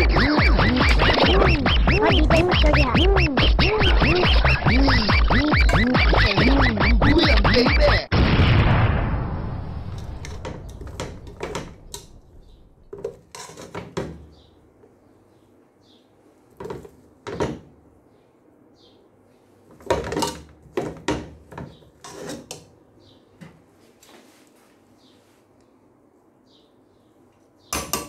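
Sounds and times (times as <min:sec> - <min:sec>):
metal spoon scraping and clinking: 0:13.0 - 0:14.0, 0:22.0 - 0:22.6.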